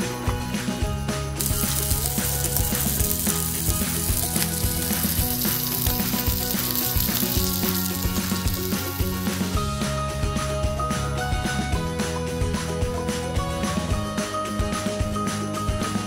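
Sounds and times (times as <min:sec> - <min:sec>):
sausage patties sizzling in oil: 0:01.4 - 0:09.8.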